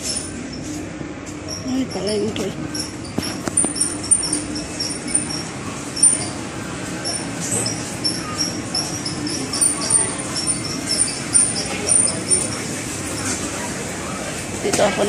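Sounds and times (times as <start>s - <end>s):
indoor market din: 0.0s - 15.0s
short high-pitched squeaks: 1.4s - 13.5s.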